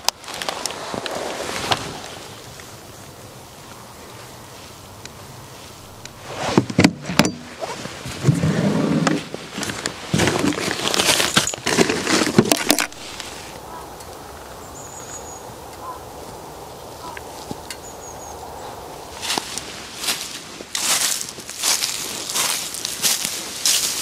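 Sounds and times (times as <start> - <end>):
fabric bags rustling: 9.2 - 13.6
faint bird chirps: 13.6 - 19.0.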